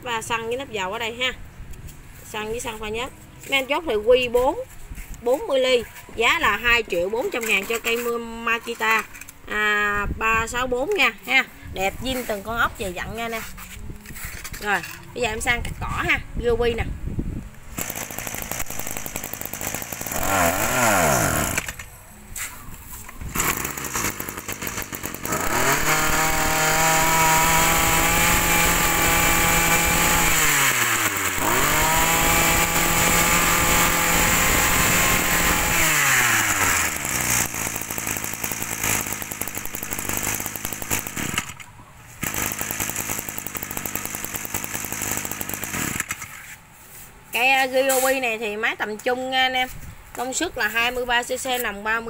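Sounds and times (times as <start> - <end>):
brush cutter engine revving and idling: 17.7 - 21.9, 23.2 - 41.6, 42.2 - 46.3.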